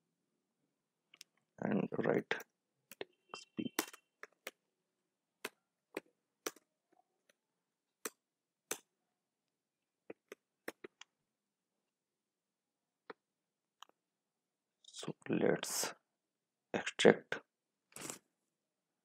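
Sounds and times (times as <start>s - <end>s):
keyboard and mouse clicks: 5.4s - 7.4s.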